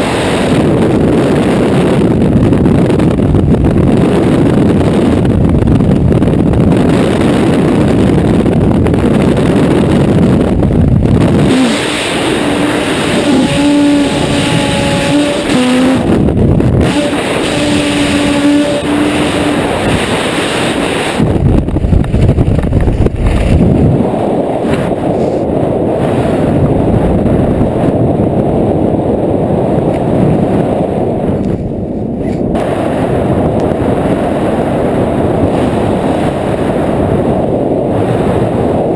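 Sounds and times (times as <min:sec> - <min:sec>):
wind rushing over microphone: 0:00.0 - 0:38.9
held tones: 0:11.4 - 0:20.1.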